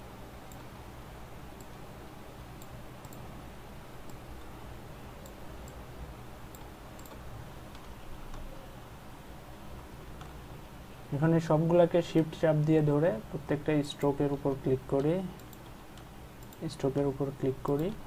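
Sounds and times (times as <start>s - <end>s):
steady low hum: 0.0s - 18.0s
computer mouse clicking: 0.4s - 0.7s, 1.6s - 1.8s, 2.5s - 3.3s, 4.0s - 4.6s, 5.2s - 5.8s, 6.5s - 8.5s, 9.8s - 10.4s, 14.9s - 18.0s.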